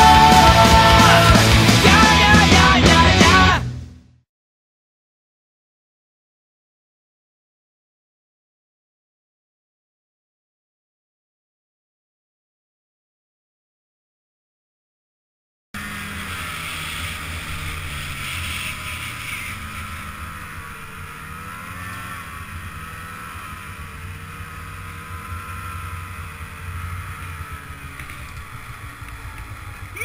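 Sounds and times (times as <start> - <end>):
snowmobile engine running: 0.0 - 4.0, 15.8 - 30.0.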